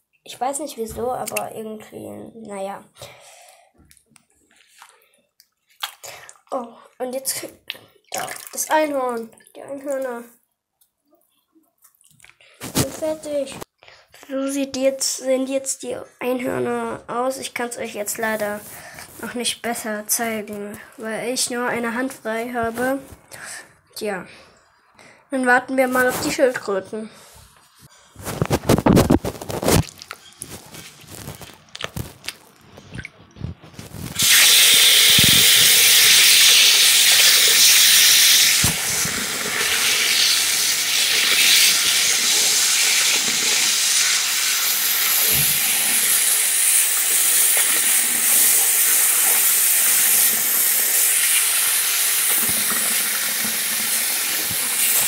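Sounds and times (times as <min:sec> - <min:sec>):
tap water running into sink: 0:34.2 - 0:55.0.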